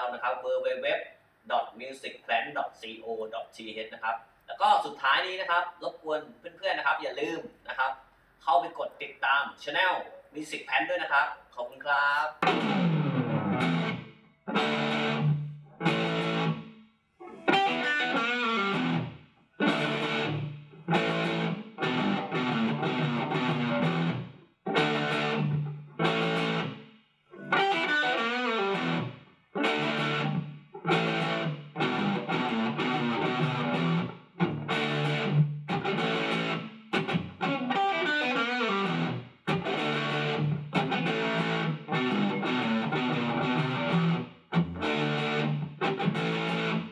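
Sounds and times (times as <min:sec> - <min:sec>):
guitar string-bending lick: 0:12.4 - 0:16.6, 0:17.2 - 0:26.8, 0:27.4 - 0:46.9
distorted electric guitar riff: 0:12.4 - 0:26.8, 0:27.4 - 0:46.9.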